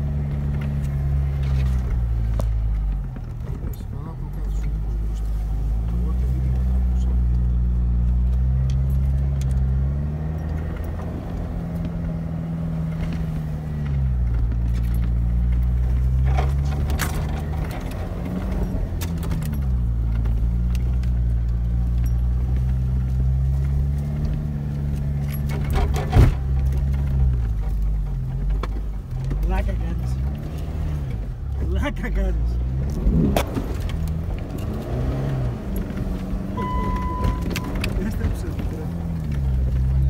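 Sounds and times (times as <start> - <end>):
car engine under load: 0.0 - 40.0
vehicle rattles and knocks: 0.0 - 40.0.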